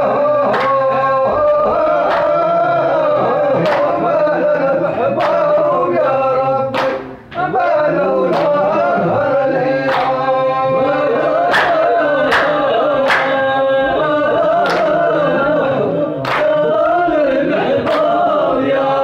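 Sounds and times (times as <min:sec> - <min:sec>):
men chanting together: 0:00.0 - 0:19.0
hand claps: 0:00.1 - 0:04.3, 0:05.1 - 0:05.7, 0:06.7 - 0:07.5, 0:08.3 - 0:08.8, 0:09.6 - 0:13.8, 0:14.5 - 0:15.2, 0:16.2 - 0:16.7, 0:17.7 - 0:18.8.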